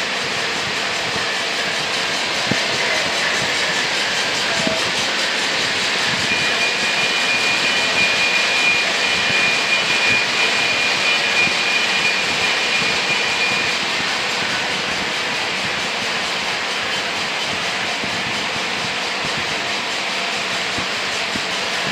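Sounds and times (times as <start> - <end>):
thin high whine: 0.0 - 21.9
model train motors whirring: 0.4 - 16.1.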